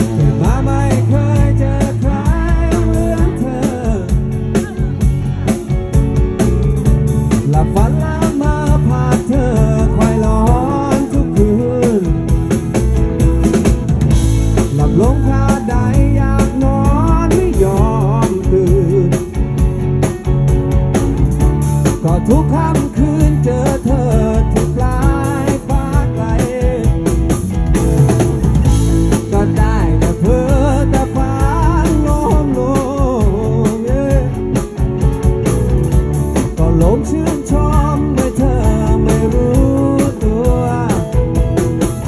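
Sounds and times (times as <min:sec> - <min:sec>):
man singing: 0:00.0 - 0:05.8, 0:07.3 - 0:12.8, 0:14.6 - 0:19.7, 0:21.8 - 0:27.4, 0:29.0 - 0:34.8, 0:36.4 - 0:41.9
bass guitar: 0:00.0 - 0:42.0
drum kit: 0:00.0 - 0:42.0
electric guitars: 0:00.0 - 0:42.0.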